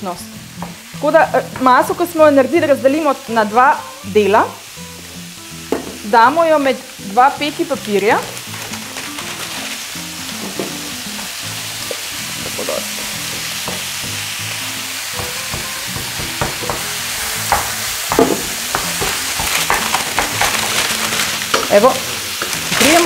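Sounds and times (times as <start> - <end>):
meat sizzling in a frying pan: 0.0 - 23.0.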